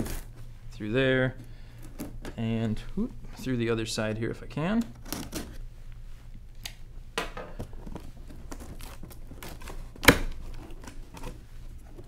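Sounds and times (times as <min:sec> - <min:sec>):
cardboard scraping and rustling: 0:00.0 - 0:00.4, 0:07.7 - 0:12.0.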